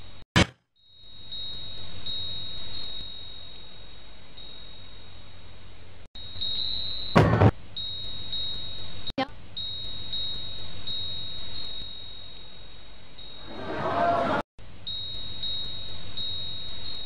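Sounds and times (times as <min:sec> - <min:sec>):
high-pitched whine: 0:06.2 - 0:09.0.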